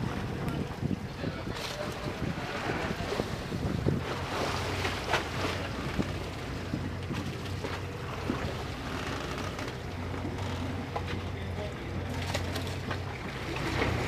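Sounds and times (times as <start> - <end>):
wind noise on microphone: 0.0 - 4.6
boat engines idling: 0.0 - 14.0
water sloshing between hulls: 0.0 - 14.0.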